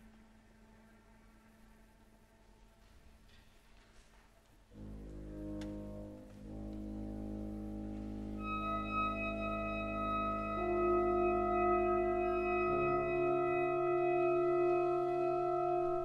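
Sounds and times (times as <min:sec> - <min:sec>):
orchestra playing slow classical music: 0:04.8 - 0:16.0.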